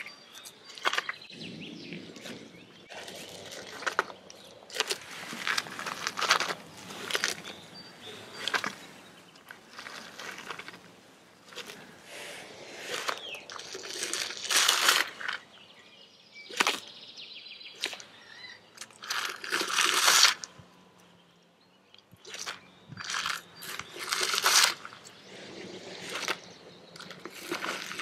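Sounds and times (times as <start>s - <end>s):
lizard crunching shell: 2.9s - 7.6s, 12.9s - 15.4s, 18.8s - 20.5s, 22.2s - 25.0s.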